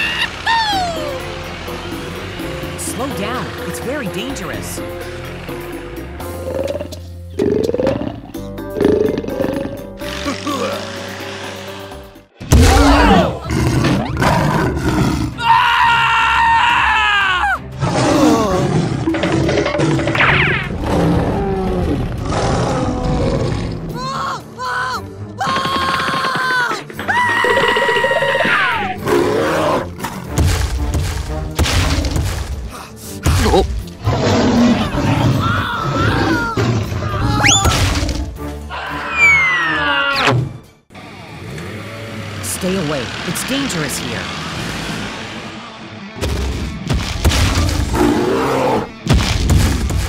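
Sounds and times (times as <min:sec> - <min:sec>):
background music: 0:00.0 - 0:50.0
dinosaur roar: 0:06.2 - 0:11.4, 0:12.5 - 0:24.2, 0:27.3 - 0:30.3, 0:33.4 - 0:40.4, 0:47.4 - 0:49.0
cartoon thumps and crashes: 0:12.5 - 0:13.0, 0:37.5 - 0:38.2, 0:49.0 - 0:50.0.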